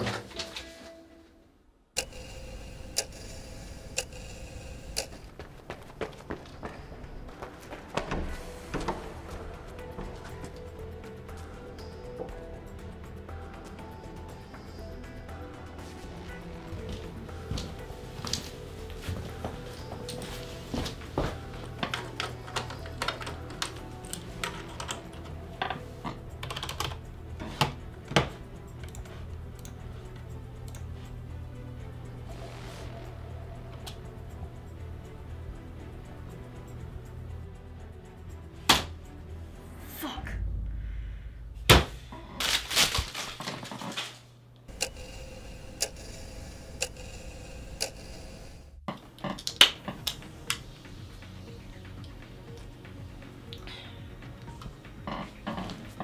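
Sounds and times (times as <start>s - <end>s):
clock ticking: 2.0s - 5.4s, 44.7s - 48.6s
typing on computer keyboard: 26.4s - 27.0s
low steady hum: 39.5s - 48.8s.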